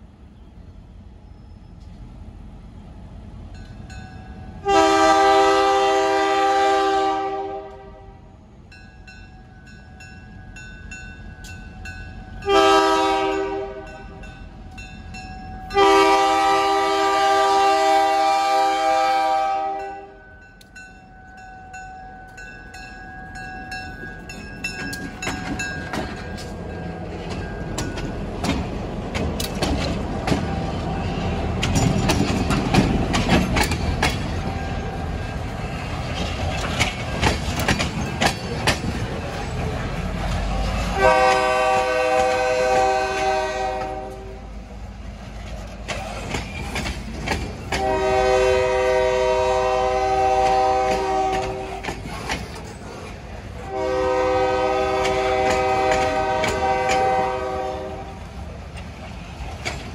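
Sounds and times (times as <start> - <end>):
locomotive engine and wheel noise: 0.0 - 59.9
locomotive air horn blasts: 4.6 - 8.3, 12.4 - 14.2, 15.7 - 20.2, 40.9 - 44.5, 47.8 - 51.8, 53.6 - 58.2.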